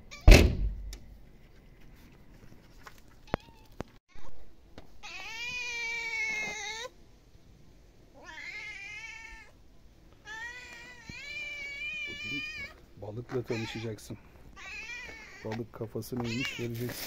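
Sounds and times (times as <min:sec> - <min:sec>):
cat meowing: 0:05.0 - 0:06.9, 0:08.2 - 0:09.6, 0:10.2 - 0:14.0, 0:14.6 - 0:15.6, 0:16.2 - 0:17.0.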